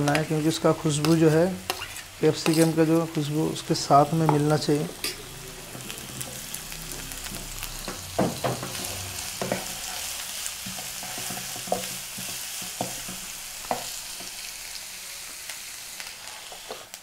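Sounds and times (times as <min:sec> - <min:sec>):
onion and capsicum sizzling: 0:00.0 - 0:17.0
wooden spatula scraping a pan: 0:00.1 - 0:03.0, 0:08.2 - 0:14.3.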